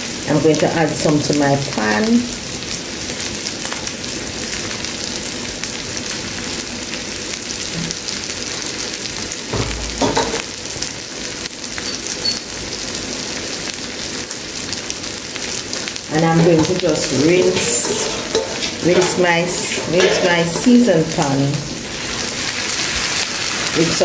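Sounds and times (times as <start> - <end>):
sauce sizzling in a saucepan: 0.0 - 24.0.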